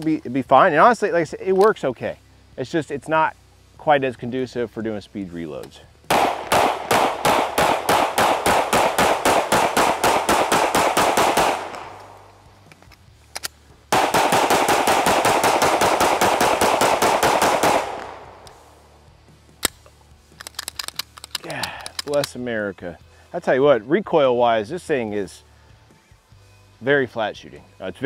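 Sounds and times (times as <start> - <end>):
pistol shots in rapid strings: 6.1 - 12.2, 13.9 - 18.4.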